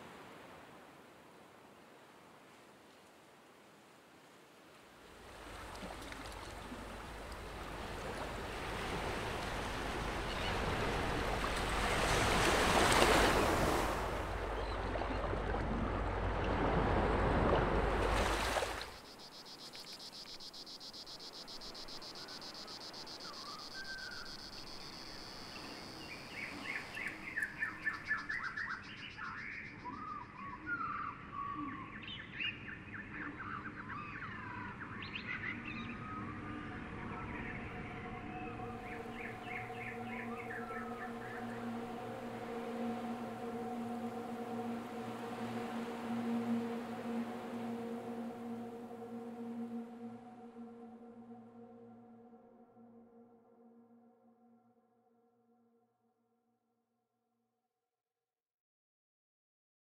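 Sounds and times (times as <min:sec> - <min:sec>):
rushing surf-like noise: 0:06.8 - 0:14.7, 0:37.8 - 0:51.2
high insect drone: 0:18.4 - 0:27.2.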